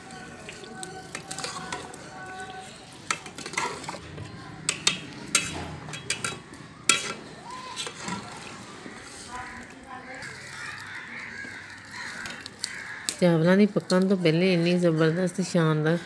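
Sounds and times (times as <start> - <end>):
ladle scraping a metal pot: 0.4 - 9.7
ladle clinking against a pot: 0.6 - 8.5.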